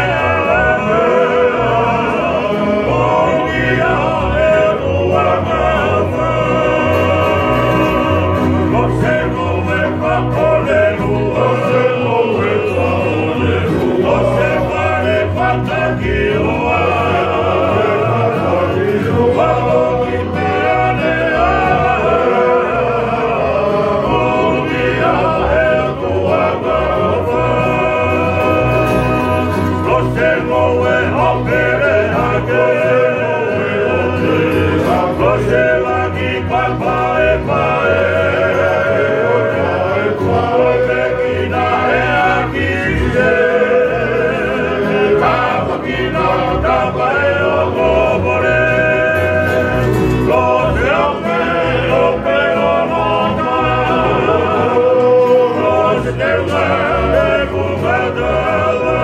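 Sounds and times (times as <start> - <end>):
acoustic guitar strumming: 0.0 - 59.0
group of men singing: 0.0 - 59.0
strummed ukuleles: 0.0 - 59.0.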